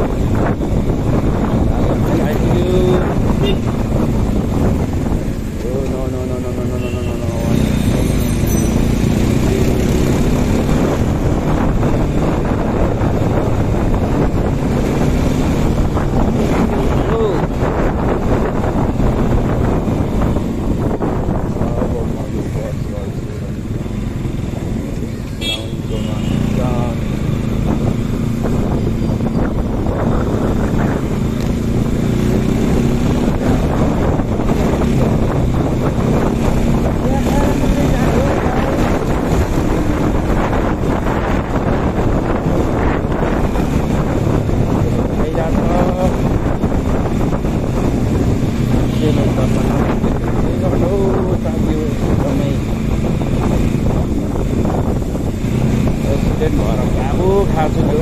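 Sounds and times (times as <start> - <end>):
motorcycle engine running: 0.0 - 58.0
wind buffeting microphone: 0.0 - 58.0.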